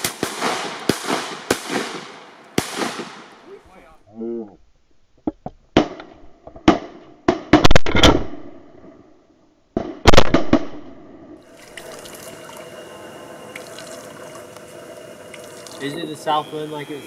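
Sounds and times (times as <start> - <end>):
shotgun shots: 0.0 - 3.5, 6.7 - 8.4, 9.8 - 10.8
steady hiss: 0.0 - 4.0, 11.5 - 17.0.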